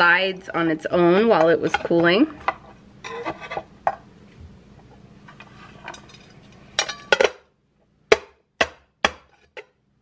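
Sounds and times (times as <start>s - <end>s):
knife scraping metal pan: 1.4s - 3.7s.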